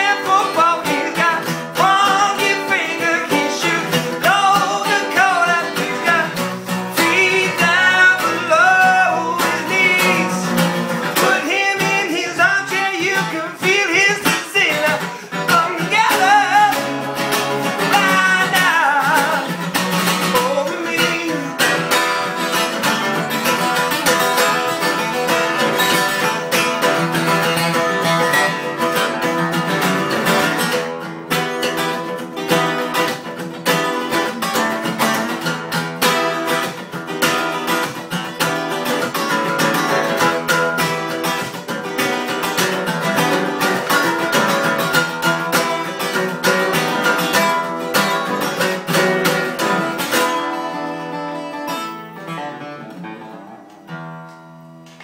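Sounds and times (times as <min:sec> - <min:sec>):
man singing: 0:00.0 - 0:23.7
acoustic guitars strumming: 0:00.0 - 0:55.0.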